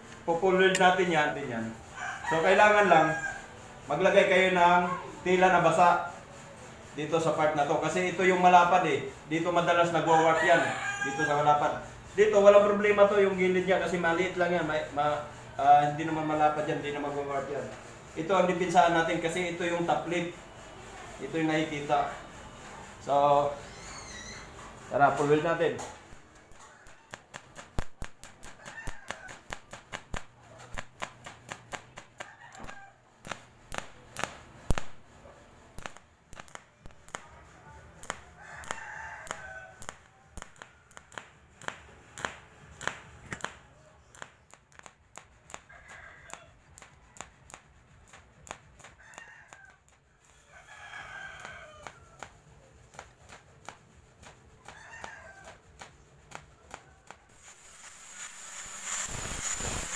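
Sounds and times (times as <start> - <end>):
welding crackling clicks: 0.0 - 1.1, 25.0 - 35.1, 35.8 - 37.4, 38.0 - 50.1, 51.4 - 59.9
rooster crowing: 1.8 - 3.7, 9.8 - 11.8, 23.5 - 27.6, 28.3 - 29.7, 32.2 - 33.2, 37.6 - 41.2, 45.6 - 47.3, 48.9 - 52.5, 54.6 - 57.4.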